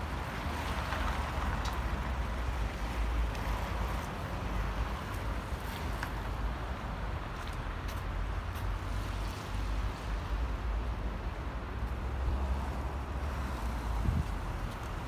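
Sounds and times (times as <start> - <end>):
wind buffeting microphone: 13.9 - 14.7.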